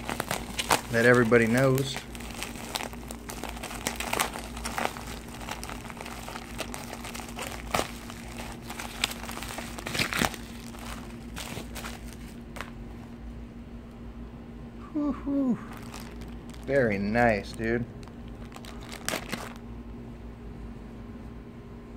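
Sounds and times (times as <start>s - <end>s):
sharp plastic crackles: 0.0s - 12.8s, 15.7s - 19.7s
bubble wrap and plastic crinkling: 0.0s - 12.9s, 15.4s - 19.7s.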